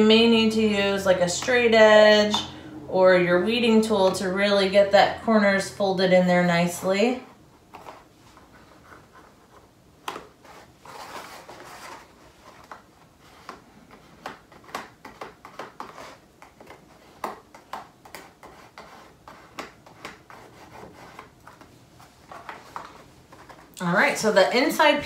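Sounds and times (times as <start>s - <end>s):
cardstock rubbing and sliding: 7.7s - 23.7s.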